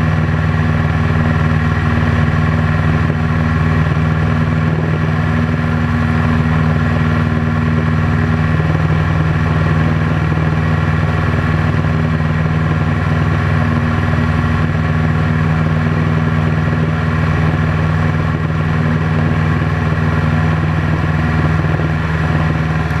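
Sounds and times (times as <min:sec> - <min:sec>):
aircraft engine drone: 0:00.0 - 0:23.0.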